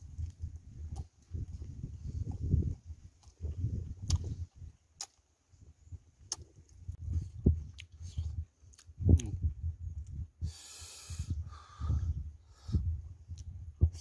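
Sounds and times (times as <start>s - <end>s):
chewing: 0.2s - 5.2s, 7.6s - 9.4s
lip smacks: 4.0s - 4.3s, 5.0s - 5.2s, 6.3s - 6.5s
sharp hissing breath: 10.4s - 12.8s.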